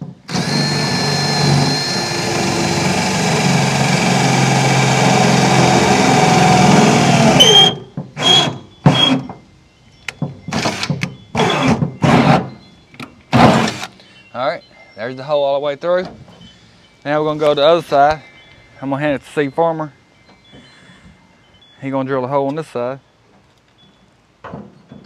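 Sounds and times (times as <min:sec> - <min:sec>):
power drill boring: 0:00.0 - 0:09.2, 0:10.5 - 0:12.4, 0:13.4 - 0:14.0.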